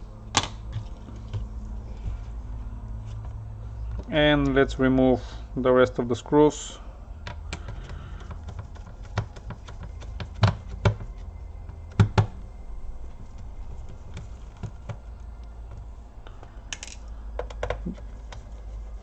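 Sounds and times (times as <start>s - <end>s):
louder knocks on plastic: 9.1s - 12.4s.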